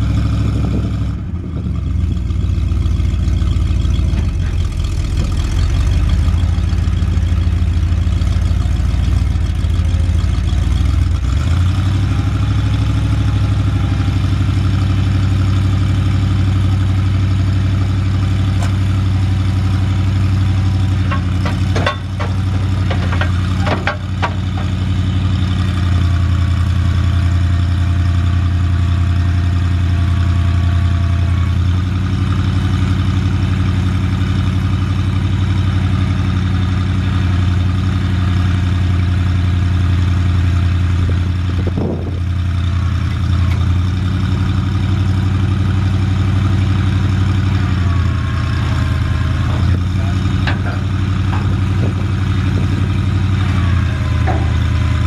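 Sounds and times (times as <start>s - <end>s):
truck engine idling: 0.0s - 55.0s
sharp clicks and knocks: 21.0s - 24.9s, 49.5s - 52.2s, 54.0s - 55.0s.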